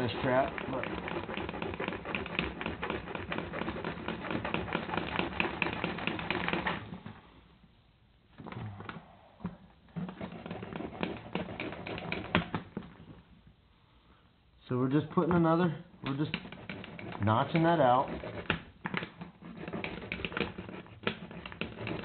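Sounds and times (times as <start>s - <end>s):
file rasping on steel: 0.0s - 6.7s, 10.2s - 12.6s, 16.1s - 18.6s, 19.4s - 22.0s.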